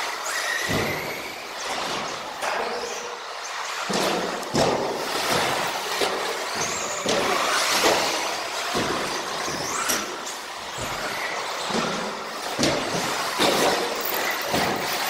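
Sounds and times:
sharp knocks: 3.9 - 15.0.

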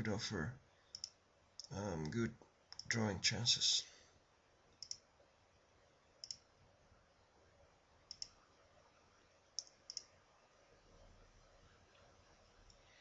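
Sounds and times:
faint room hiss: 0.0 - 13.0
computer mouse button clicking: 6.2 - 6.4, 8.1 - 8.3, 9.6 - 10.1.

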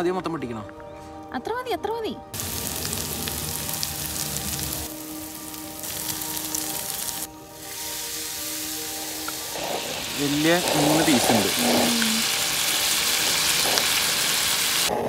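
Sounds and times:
fish sizzling in hot oil: 2.4 - 14.9.

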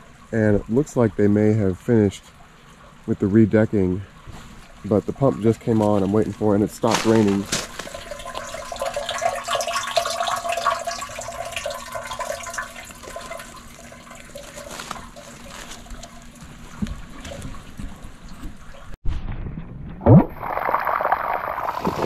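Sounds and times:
water gurgling and trickling: 0.0 - 22.0
sump pump running: 6.8 - 16.4.

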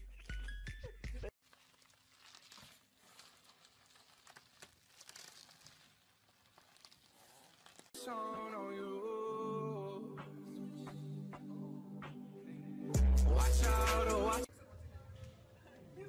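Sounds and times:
bubble wrap crinkling: 1.4 - 8.0.

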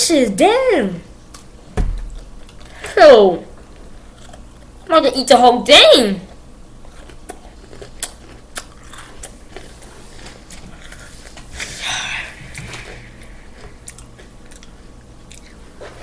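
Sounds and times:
person chewing a cookie: 1.3 - 3.0, 3.6 - 4.9, 6.3 - 11.7, 12.4 - 16.0.

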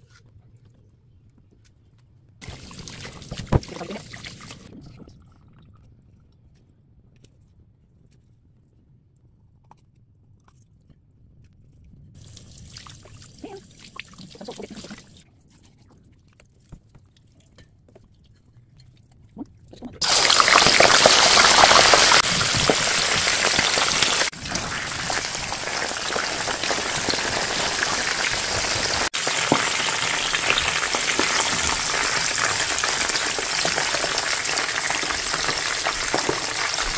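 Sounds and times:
water trickling and splashing: 2.4 - 5.6, 12.2 - 15.2, 20.0 - 36.9
fish sizzling in hot oil: 20.0 - 36.9.

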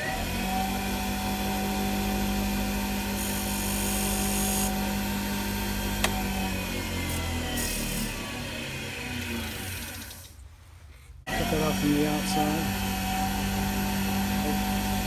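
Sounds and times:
wood lathe motor humming: 0.0 - 10.3, 11.3 - 15.0
pencil hissing on spinning wood: 3.2 - 4.7.

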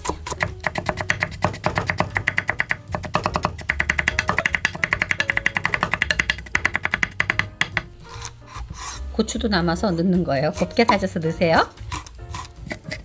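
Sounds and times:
knife chopping on wooden board: 0.0 - 8.9.

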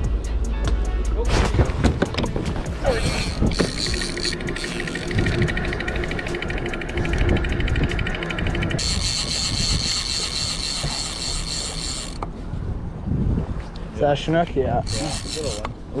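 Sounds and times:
fishing reel ratchet clicking: 2.9 - 12.3, 14.8 - 16.0.

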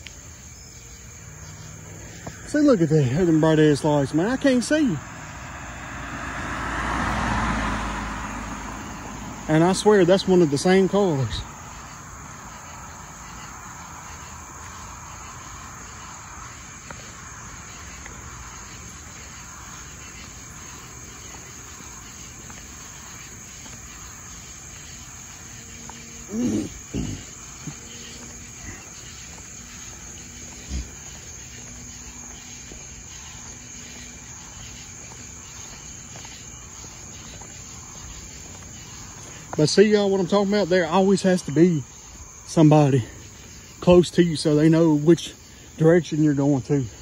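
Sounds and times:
crickets chirping: 0.0 - 47.0.

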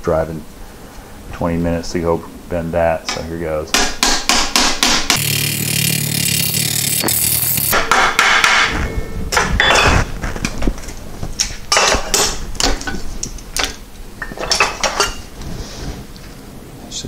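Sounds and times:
hammer striking sheet steel: 7.4 - 10.0.

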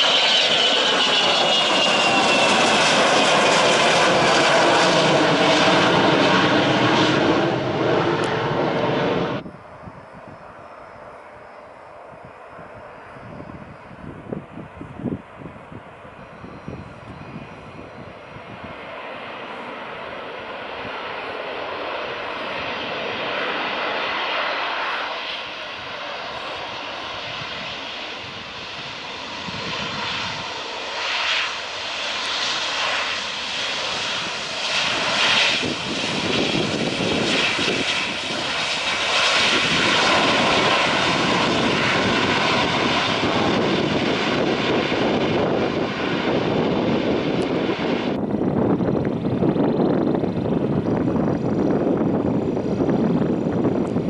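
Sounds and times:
airliner jet engines landing roll: 0.0 - 54.0.

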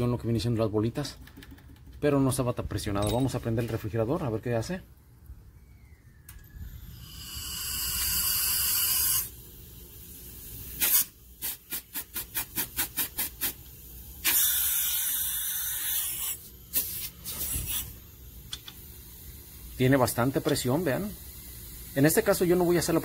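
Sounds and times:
gas hissing from copper line: 6.6 - 23.0.

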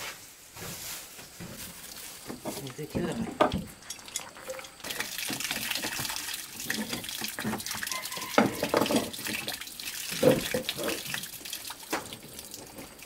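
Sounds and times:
tools knocking and clinking: 2.5 - 4.8
tap water running into metal sink: 2.6 - 13.0.

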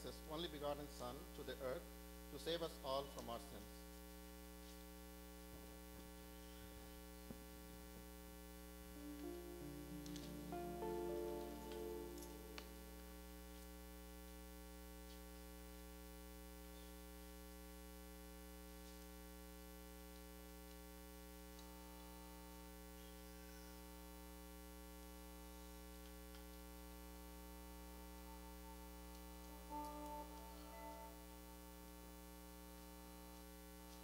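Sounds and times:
steady low hum: 24.4 - 34.0.

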